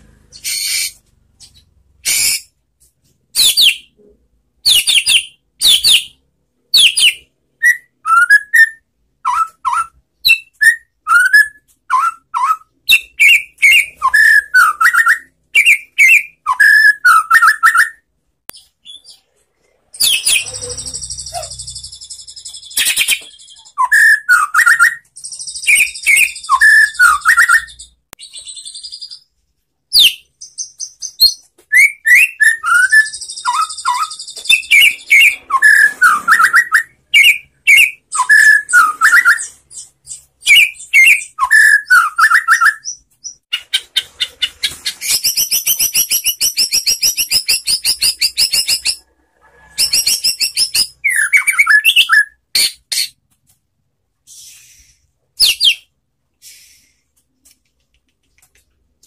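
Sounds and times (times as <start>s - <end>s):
bird singing whistles and trills: 6.8s - 18.0s, 20.0s - 29.3s, 29.9s - 43.4s, 49.8s - 52.7s, 54.3s - 55.9s.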